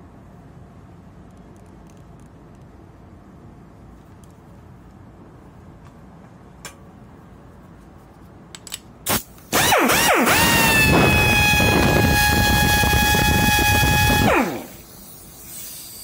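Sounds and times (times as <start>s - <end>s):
pneumatic screwdriver whining: 9.1s - 15.9s
air hiss: 14.5s - 16.0s.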